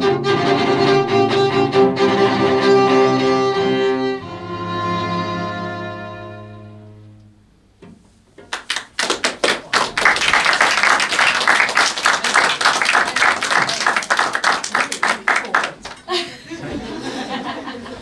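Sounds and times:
string ensemble chord: 0.0s - 7.5s
audience applauding: 8.5s - 16.2s.

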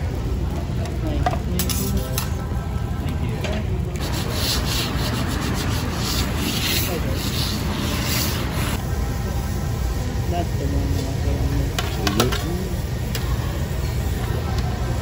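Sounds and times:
metal scraper rasping on griddle: 4.0s - 8.8s.

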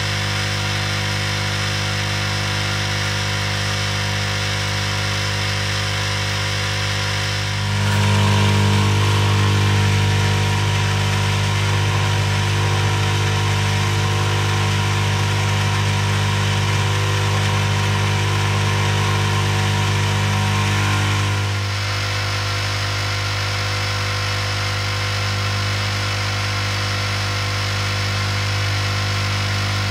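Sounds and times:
hot air blower whir and hiss: 0.0s - 29.9s
low hum: 6.4s - 17.9s.

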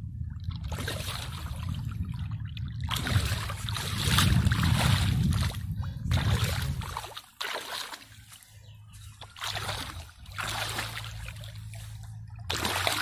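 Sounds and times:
muddy water splashing: 0.3s - 13.0s.

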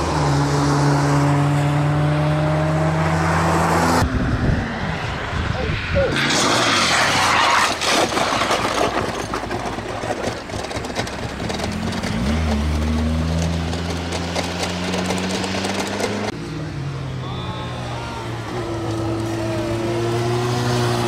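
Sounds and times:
motorcycle scraping across track: 6.1s - 16.4s.

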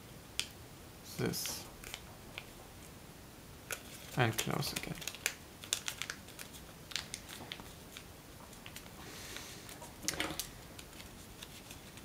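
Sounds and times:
paper crinkling and crackling: 3.7s - 9.0s, 9.6s - 12.0s
soft paper rustle: 3.7s - 12.0s.

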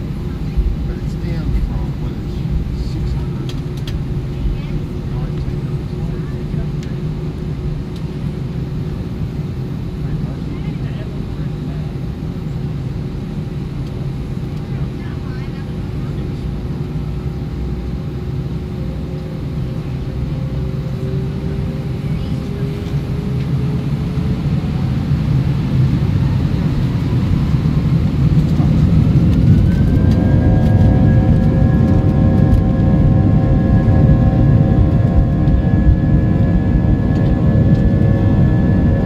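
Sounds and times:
jet engines spooling up: 19.0s - 39.0s.

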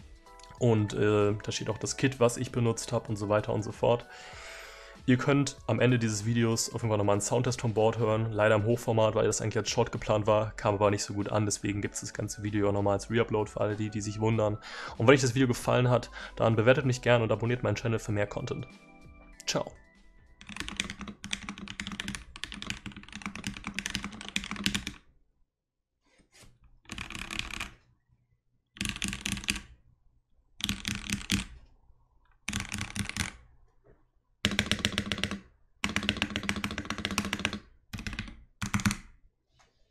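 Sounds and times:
mechanical keyboard typing: 20.4s - 25.0s, 26.9s - 27.8s, 28.8s - 29.7s, 30.6s - 31.6s, 32.5s - 33.4s, 34.4s - 39.1s.

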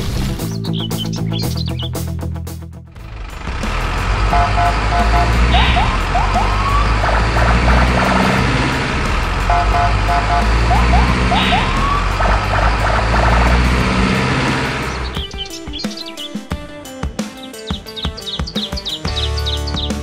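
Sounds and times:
looping background music: 0.0s - 20.0s
short blips: 4.3s - 8.3s.

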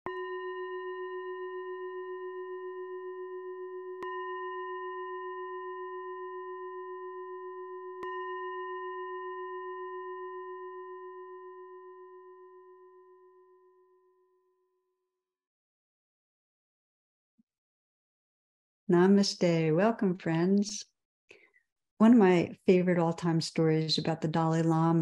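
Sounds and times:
meditation bell ringing: 0.0s - 14.6s.

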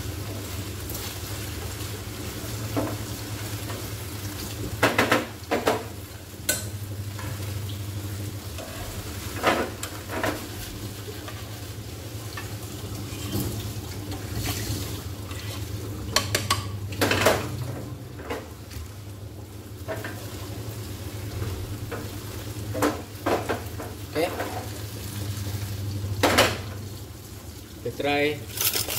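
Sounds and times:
spaghetti sizzling in a pan: 0.0s - 17.0s
tongs scraping and knocking pan: 28.5s - 28.9s.

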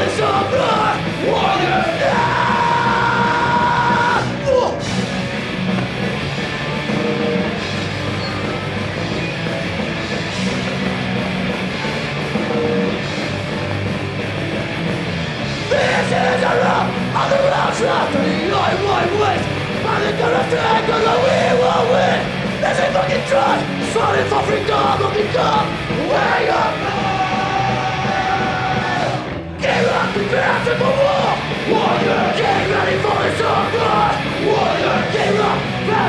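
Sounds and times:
vocalist yelling: 0.0s - 4.9s, 15.7s - 36.0s
punk band playing live: 0.0s - 36.0s.

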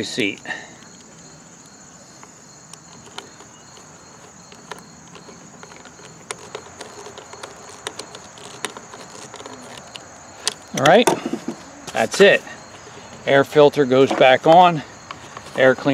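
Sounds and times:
nut driver clicking on screws: 0.1s - 11.2s.

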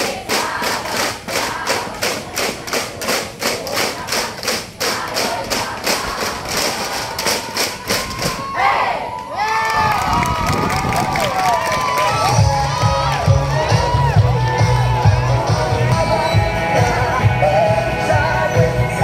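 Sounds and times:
percussion beating fast rhythm: 0.0s - 8.5s.

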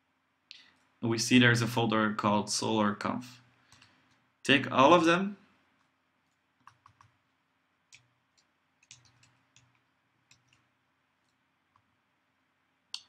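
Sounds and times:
computer mouse clicks: 3.7s - 4.2s, 5.8s - 7.2s, 7.9s - 11.9s.

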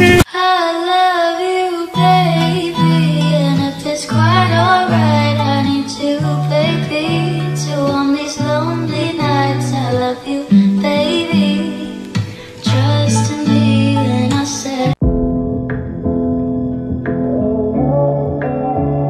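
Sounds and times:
plucked guitar: 0.0s - 0.3s, 1.9s - 19.0s
woman singing: 0.0s - 15.0s
stepping bass line: 15.0s - 18.7s.

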